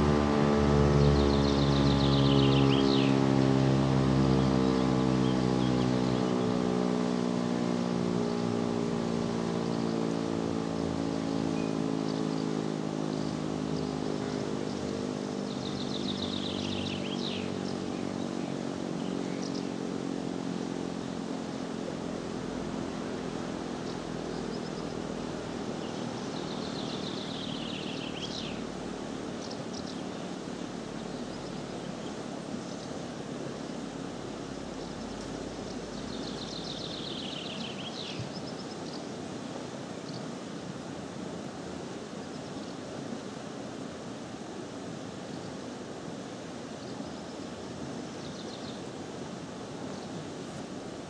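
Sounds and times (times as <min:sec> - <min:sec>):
air-raid siren winding down: 0:00.0 - 0:12.1
bird singing: 0:00.0 - 0:39.2, 0:40.0 - 0:40.4, 0:46.8 - 0:48.9
river rushing: 0:00.0 - 0:51.0.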